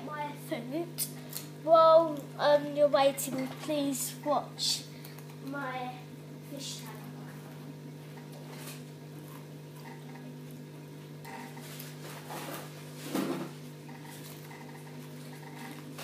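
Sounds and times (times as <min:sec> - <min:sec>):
aquarium filter hum: 0:00.0 - 0:16.0.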